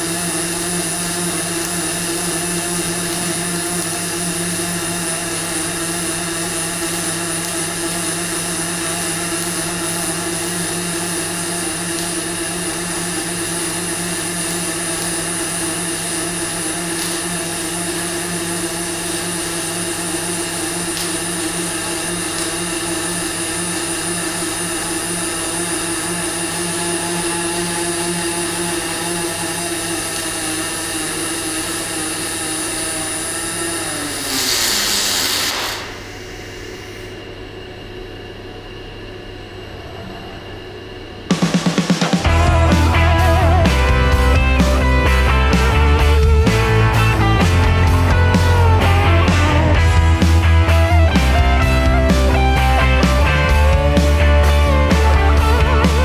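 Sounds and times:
welding arc hiss: 0:00.0 - 0:37.2, 0:41.3 - 0:56.0
machine hum: 0:00.0 - 0:56.0
constant low hum: 0:35.8 - 0:56.0.

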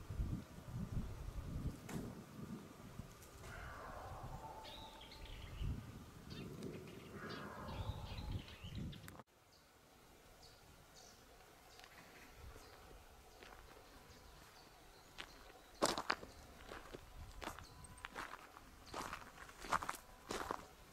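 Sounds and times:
small birds chirping: 0:03.5 - 0:09.7, 0:10.4 - 0:20.8.

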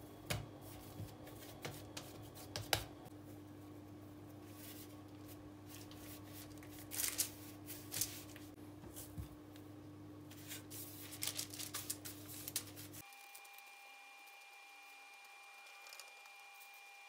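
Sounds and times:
parchment paper rustling and crinkling: 0:04.4 - 0:09.3, 0:10.3 - 0:13.6, 0:15.6 - 0:16.8.

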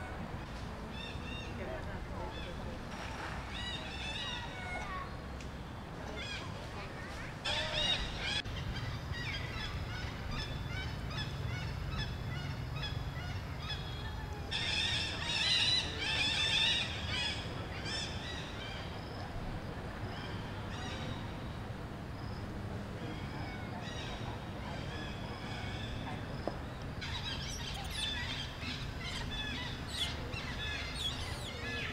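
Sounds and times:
monkeys chirping and squealing: 0:27.0 - 0:31.9.

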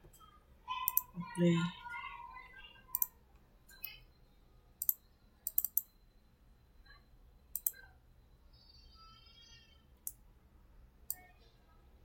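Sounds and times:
computer mouse clicking: 0:00.0 - 0:01.1, 0:02.9 - 0:03.1, 0:04.8 - 0:05.9, 0:07.5 - 0:07.8.

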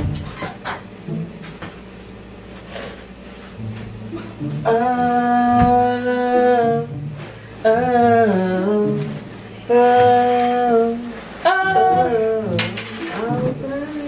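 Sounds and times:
person humming: 0:04.1 - 0:07.0, 0:07.6 - 0:14.0.

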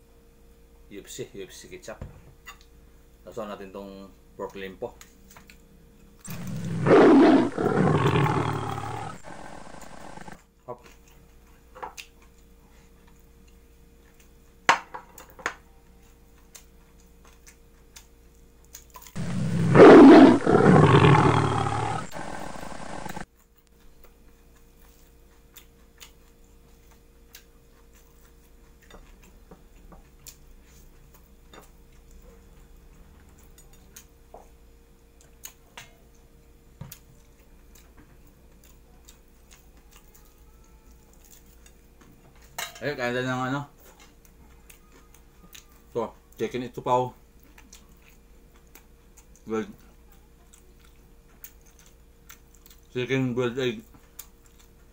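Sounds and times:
steady electrical hum: 0:00.0 - 0:14.6, 0:15.6 - 0:28.9
big cat roar: 0:06.3 - 0:10.4, 0:19.2 - 0:23.2
chewing sounds: 0:06.3 - 0:14.4, 0:16.0 - 0:34.1, 0:36.9 - 0:42.5, 0:43.8 - 0:45.9, 0:47.4 - 0:53.0, 0:53.8 - 0:54.9.

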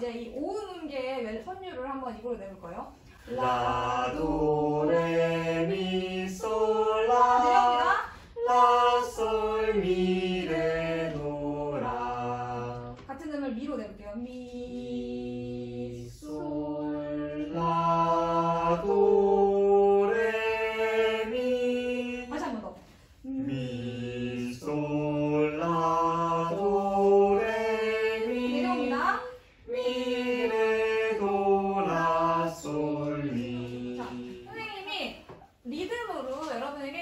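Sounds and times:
voices singing in unison: 0:03.0 - 0:35.6.

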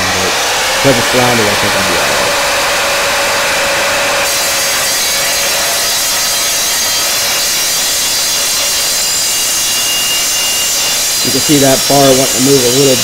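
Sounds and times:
miter saw motor running: 0:00.0 - 0:13.0
saw blade cutting metal pipe: 0:00.0 - 0:13.0.

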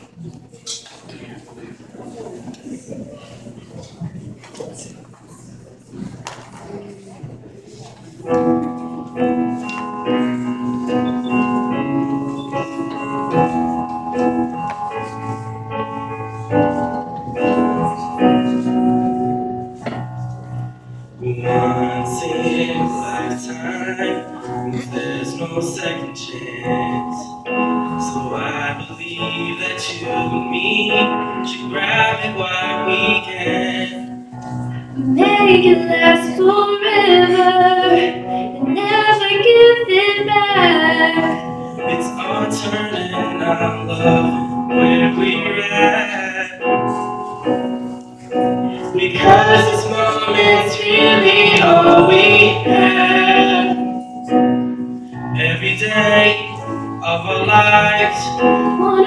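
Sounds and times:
piano chords: 0:07.9 - 0:59.0
young woman singing: 0:35.0 - 0:41.4.

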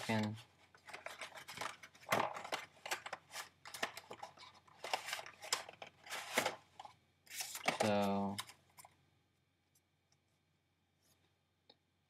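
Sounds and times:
packaging crinkling: 0:00.8 - 0:08.9.

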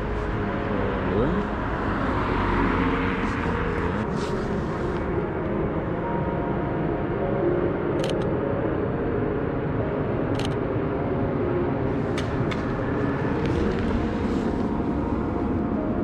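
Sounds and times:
city street traffic rumble: 0:00.0 - 0:16.0.

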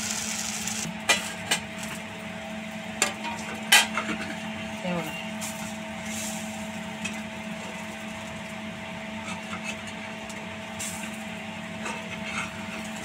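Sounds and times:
faint sizzling: 0:00.0 - 0:00.9
steady mechanical hum: 0:00.0 - 0:13.0.

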